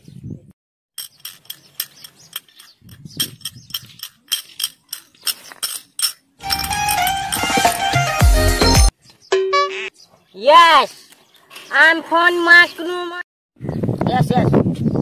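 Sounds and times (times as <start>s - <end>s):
mobile phone ringtone: 6.4s - 9.9s.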